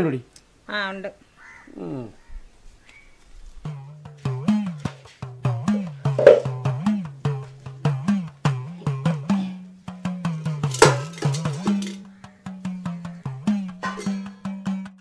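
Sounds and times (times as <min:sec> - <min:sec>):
music with percussive beat: 0:03.7 - 0:15.0
sliding bass line: 0:04.2 - 0:07.0.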